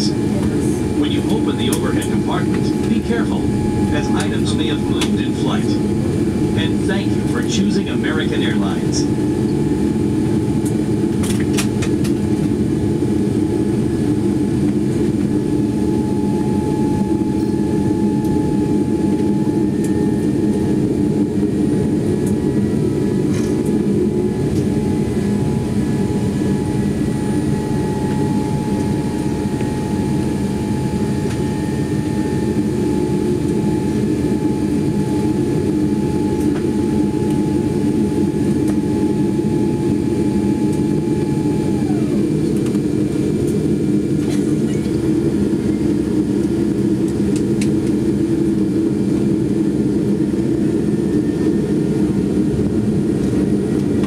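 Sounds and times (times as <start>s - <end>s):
low rumble of idling engines: 0.0s - 9.0s
faint steady whine: 0.0s - 10.0s.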